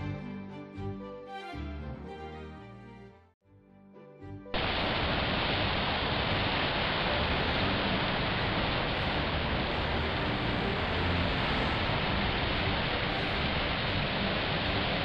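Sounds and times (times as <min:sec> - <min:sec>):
surf breaking on rocks: 0:04.6 - 0:15.0
soft background music: 0:06.3 - 0:15.0.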